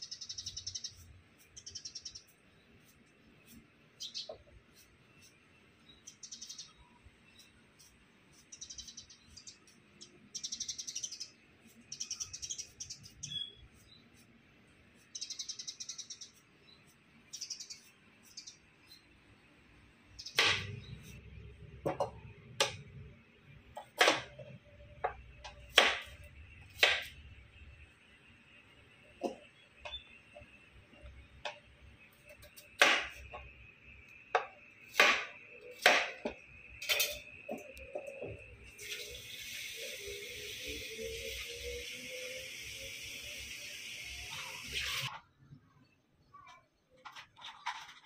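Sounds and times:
small birds chirping: 0:00.0 - 0:22.4, 0:27.8 - 0:43.4.

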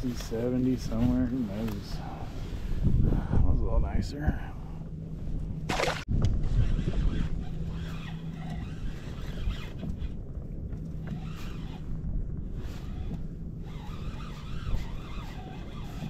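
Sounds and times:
wind rumbling on microphone: 0:00.0 - 0:16.0
water washing against hull: 0:05.6 - 0:10.0.

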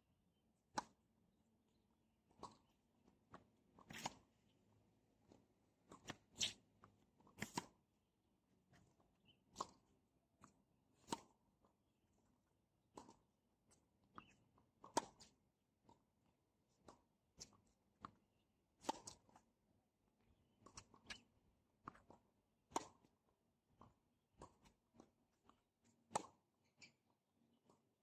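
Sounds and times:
tennis ball bouncing: 0:00.7 - 0:01.0, 0:05.9 - 0:07.8, 0:08.7 - 0:11.4, 0:12.9 - 0:13.2, 0:14.1 - 0:16.0, 0:18.8 - 0:19.4, 0:20.2 - 0:27.0
racket hitting tennis ball: 0:07.4 - 0:07.7, 0:18.8 - 0:19.3.

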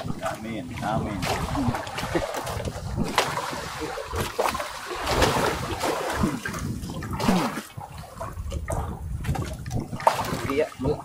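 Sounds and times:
sea water splashing against boat: 0:00.0 - 0:11.0.

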